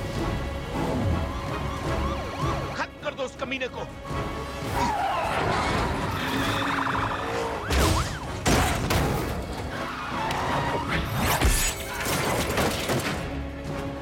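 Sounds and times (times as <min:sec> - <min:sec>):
tyres skidding: 0:03.9 - 0:14.0.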